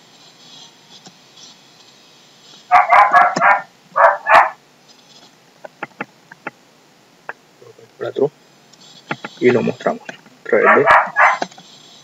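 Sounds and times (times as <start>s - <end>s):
dog barking: 2.7s - 4.6s, 10.6s - 11.4s.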